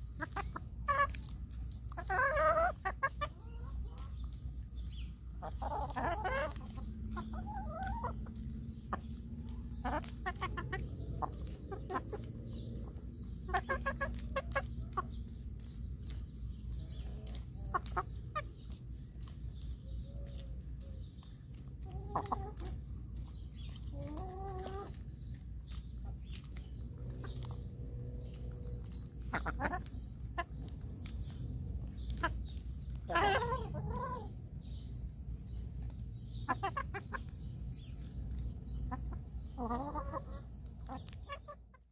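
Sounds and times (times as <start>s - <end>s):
hens clucking: 0.0s - 41.9s
beaks tapping on corn cob: 5.4s - 34.0s.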